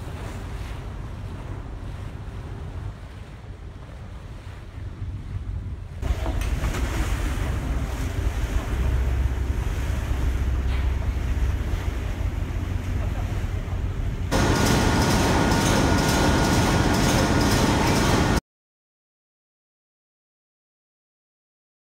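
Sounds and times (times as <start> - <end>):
wind buffeting microphone: 0.0 - 14.5
boat engine rumbling: 0.0 - 18.4
steady high whine: 13.8 - 18.4
diesel engine running: 14.3 - 18.4.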